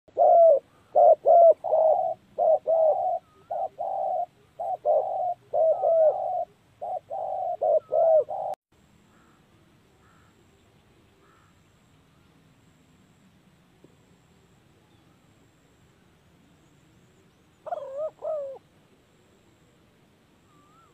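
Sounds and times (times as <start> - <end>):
doves cooing: 0.1 - 8.6, 17.6 - 18.7
small birds chirping: 0.1 - 8.6.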